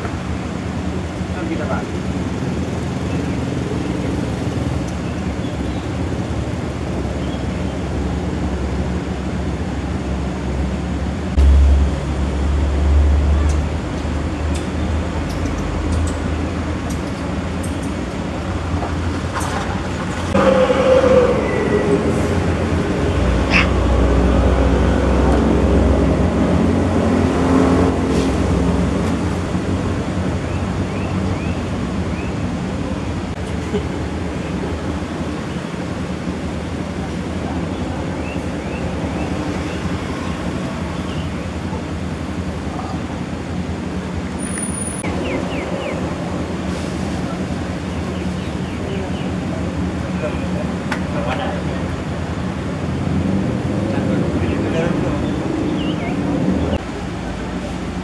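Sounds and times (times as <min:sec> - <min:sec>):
loud deep rumble: 0:07.6 - 0:44.4.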